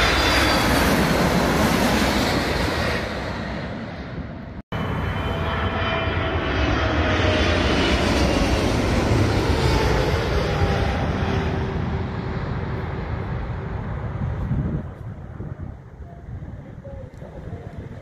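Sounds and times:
jet airliner passing overhead: 0:00.0 - 0:18.0.

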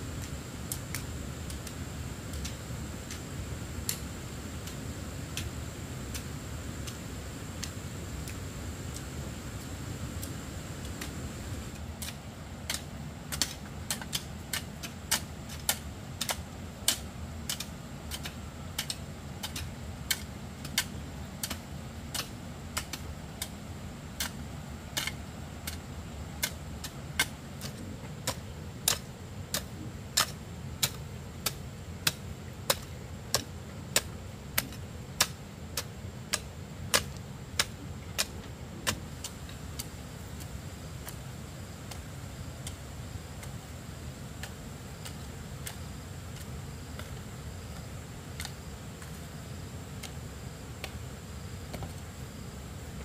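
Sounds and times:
steady low rumble: 0:00.0 - 0:11.9.

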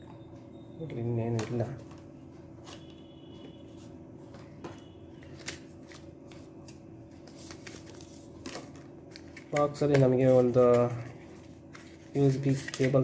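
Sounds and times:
paper rustling: 0:05.2 - 0:13.0.

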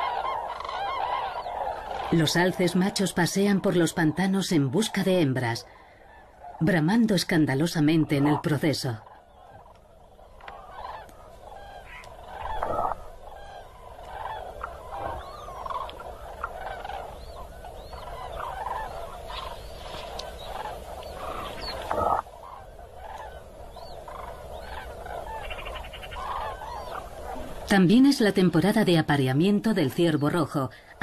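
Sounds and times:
flock of cranes bugling: 0:00.0 - 0:31.0.

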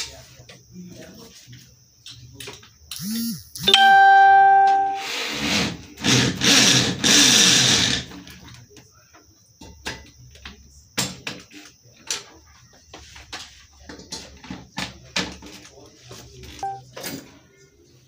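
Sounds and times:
clear ringing note: 0:03.7 - 0:05.1, 0:16.6 - 0:16.8.

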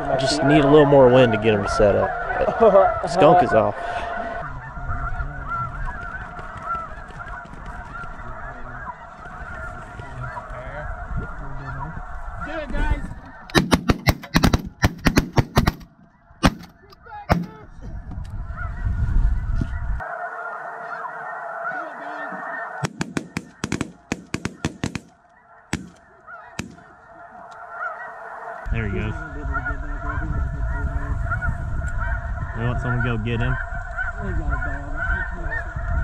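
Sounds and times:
geese honking: 0:00.0 - 0:36.0
shotgun shots: 0:13.5 - 0:16.7, 0:17.3 - 0:17.6, 0:22.8 - 0:26.0, 0:26.6 - 0:26.9.

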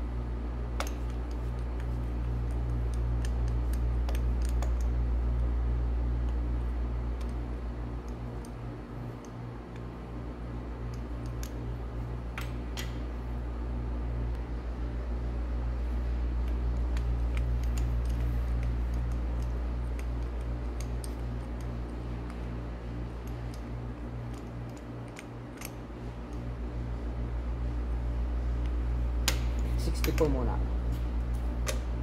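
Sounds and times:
low pulsing machine hum: 0:00.0 - 0:32.0.

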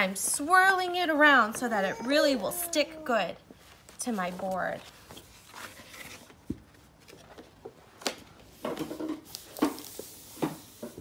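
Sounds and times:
paper and cardboard rustling: 0:03.6 - 0:11.0.

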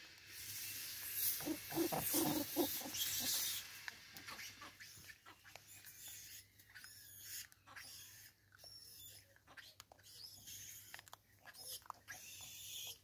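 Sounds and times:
monkeys grunting: 0:01.4 - 0:03.6.

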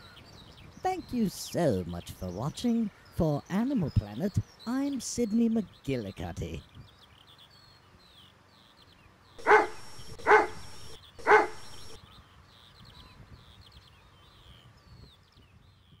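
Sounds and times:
dog barking: 0:09.4 - 0:12.0.

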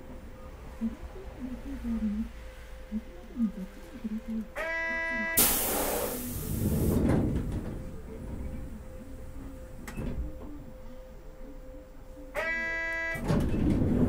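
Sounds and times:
streetcar running noise: 0:00.0 - 0:14.0.

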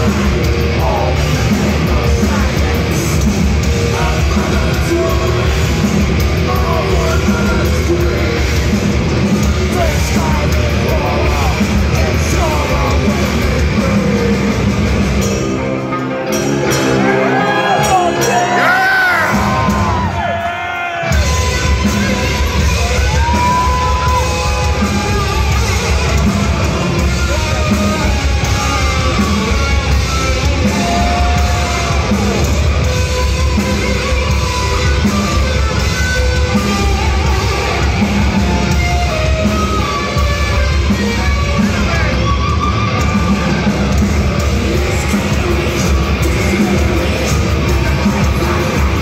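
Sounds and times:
metal band playing live: 0:00.0 - 0:49.0
person yelling: 0:17.3 - 0:21.2.

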